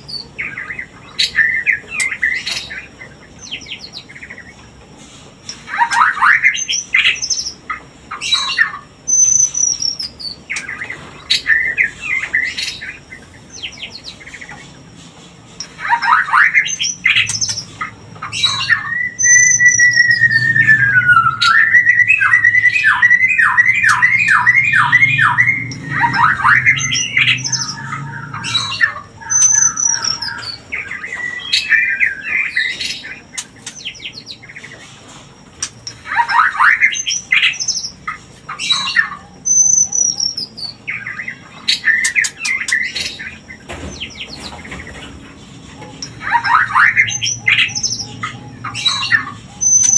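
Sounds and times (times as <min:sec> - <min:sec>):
birds singing and calling: 0:00.0 - 0:49.9
repeated bird notes: 0:00.0 - 0:49.9
long sliding bird whistle: 0:18.4 - 0:30.6.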